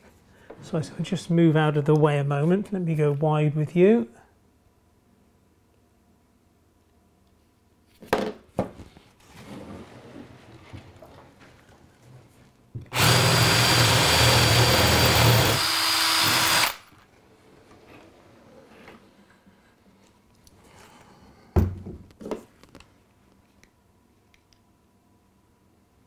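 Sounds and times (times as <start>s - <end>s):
power drill boring through wood: 12.9s - 16.9s.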